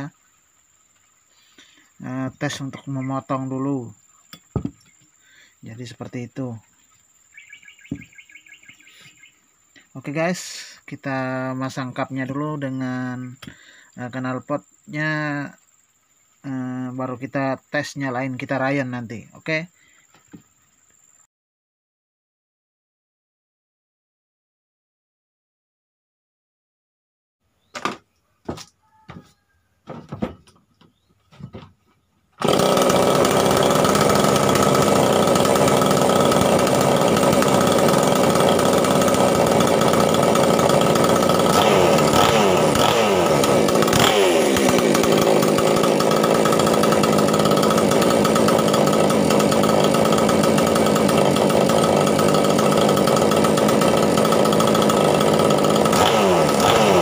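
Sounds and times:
chainsaw engine running: 32.4s - 57.0s.

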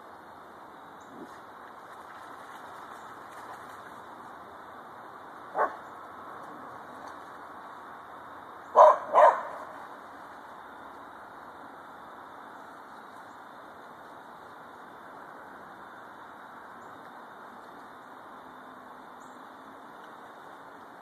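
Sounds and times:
hound barking: 5.5s - 5.8s, 8.7s - 9.7s.

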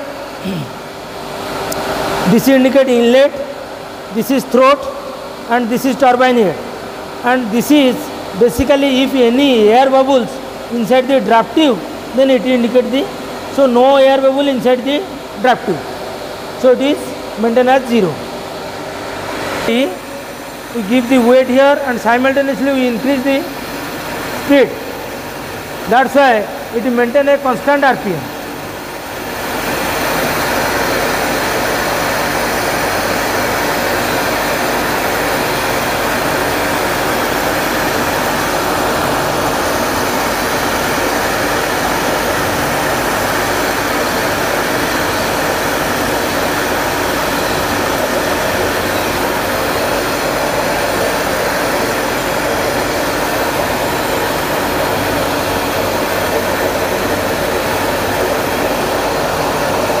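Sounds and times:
water rushing through turbine: 17.2s - 60.0s.

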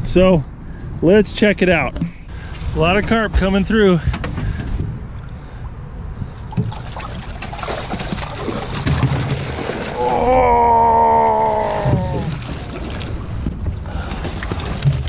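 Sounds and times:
water sloshing and splashing: 2.0s - 15.0s.

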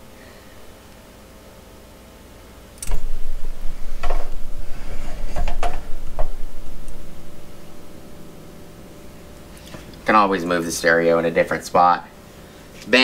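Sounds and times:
knocks and scrapes: 2.9s - 7.4s.

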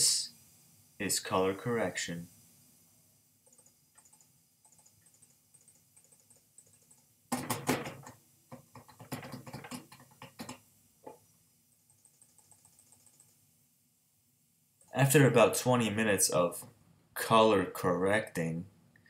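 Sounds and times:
computer keyboard clicking: 3.5s - 7.8s, 8.8s - 10.6s, 11.9s - 13.4s.

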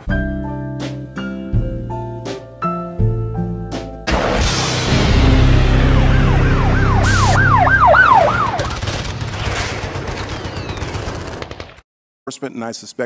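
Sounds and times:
siren yelp: 5.0s - 8.8s.

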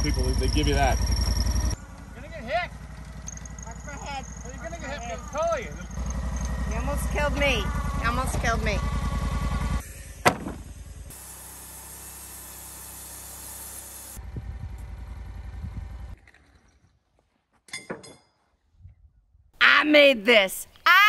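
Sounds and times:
sawmill engine running: 0.0s - 16.2s
sharp knock: 10.2s - 10.6s.

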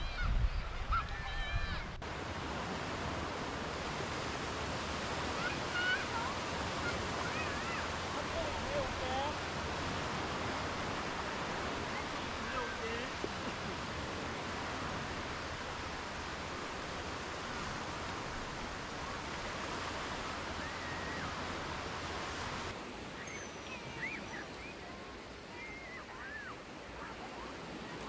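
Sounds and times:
waves breaking on beach: 0.1s - 28.0s
faint distant calls: 22.8s - 28.0s.

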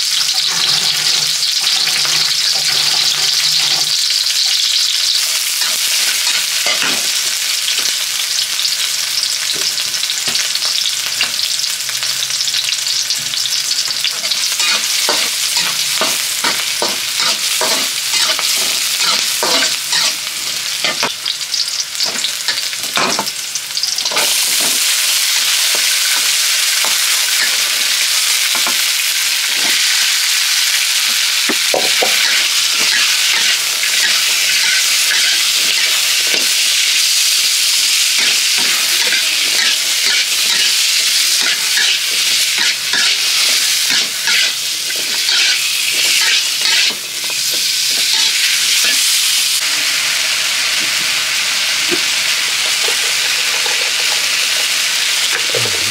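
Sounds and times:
frying sizzle: 0.0s - 55.9s
metal spatula scraping wok: 0.2s - 4.0s, 14.2s - 21.1s, 31.7s - 36.5s, 38.2s - 49.1s.

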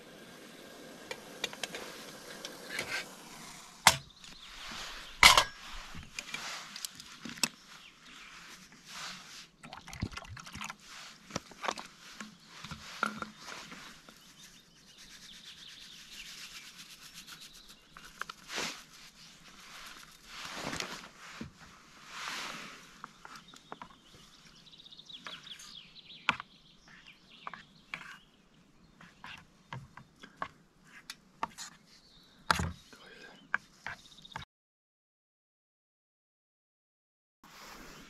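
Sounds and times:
metal cookware clinking: 5.2s - 5.6s
flakes shaken from packet: 14.2s - 20.5s.

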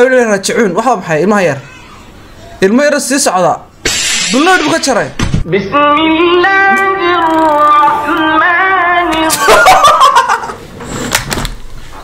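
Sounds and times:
man laughing: 9.2s - 10.6s.

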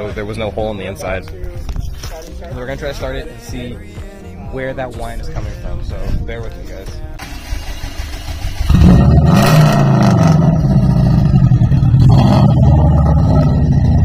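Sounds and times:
car engine starting and running: 7.2s - 14.0s.

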